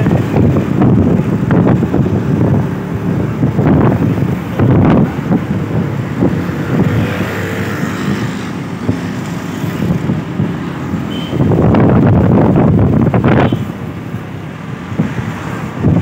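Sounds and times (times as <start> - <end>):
vehicle rumble and road noise: 0.0 - 16.0
wind buffeting microphone: 0.0 - 16.0.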